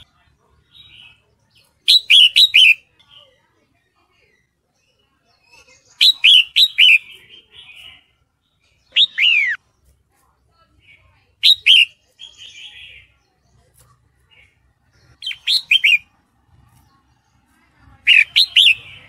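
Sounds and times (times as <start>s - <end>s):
bird scratchy chatter: 0.0s - 3.4s, 8.8s - 19.0s.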